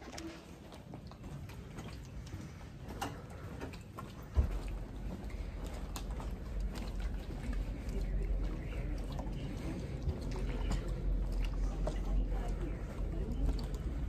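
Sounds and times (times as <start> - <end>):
steady low rumble: 0.2 - 14.0
footsteps on hard floor: 3.6 - 7.5.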